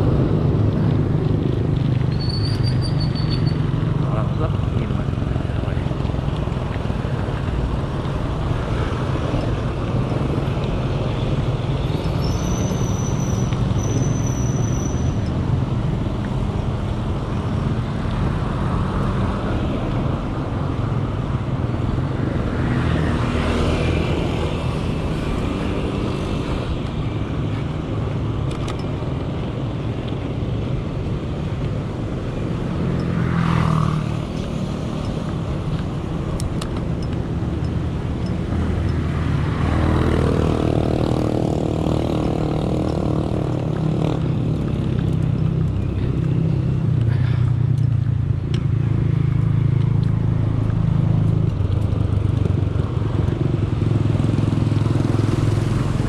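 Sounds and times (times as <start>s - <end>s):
wind rumble on microphone: 0.0s - 3.9s
vehicles passing: 0.0s - 56.0s.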